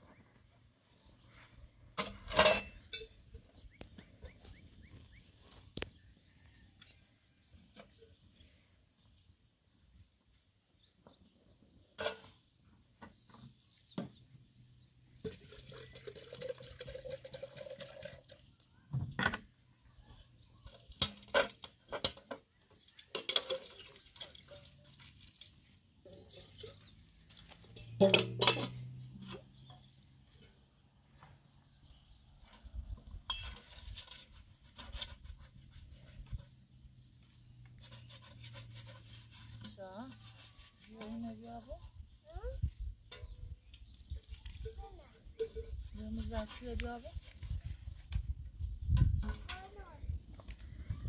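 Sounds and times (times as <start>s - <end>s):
metal dishes clattering: 2.0s - 3.4s, 23.0s - 24.7s, 27.7s - 29.0s
water pouring: 15.2s - 18.5s, 23.2s - 27.6s.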